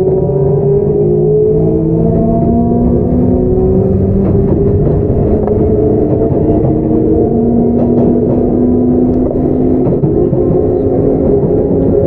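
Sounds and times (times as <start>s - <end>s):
electric train motor whine: 0.0s - 12.0s
wheels rumbling on rail: 0.0s - 12.0s
faint track clicks: 4.2s - 12.0s.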